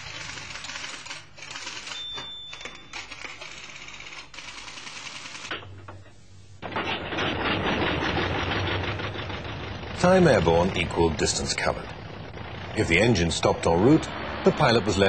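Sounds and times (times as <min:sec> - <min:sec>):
piston aeroplane engine clatter: 0:06.6 - 0:12.0.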